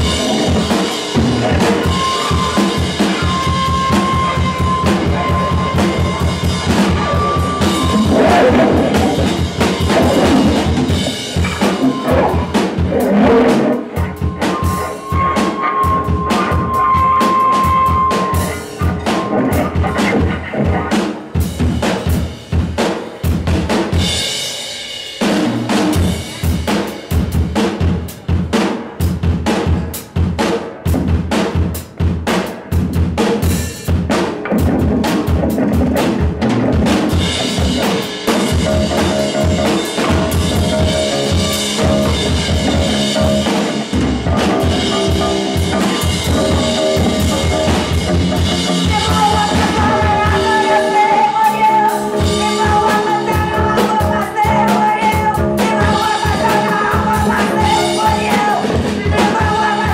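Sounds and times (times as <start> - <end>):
sustained instrument notes: 0.0 - 20.6
drum kit played fast: 0.0 - 59.9.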